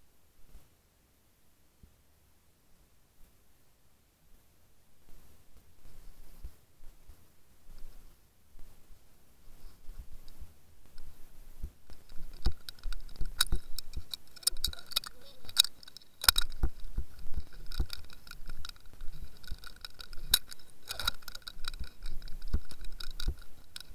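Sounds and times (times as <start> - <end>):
faint high hum: 0.0 - 23.9
underwater clicks and rattles: 10.2 - 23.9.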